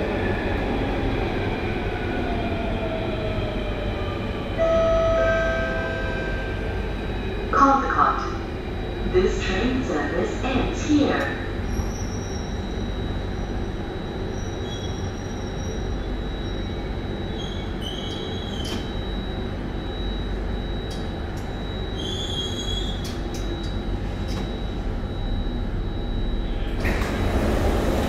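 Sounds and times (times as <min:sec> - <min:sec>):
metro train rumble: 0:00.0 - 0:28.0
high whine: 0:04.6 - 0:11.4.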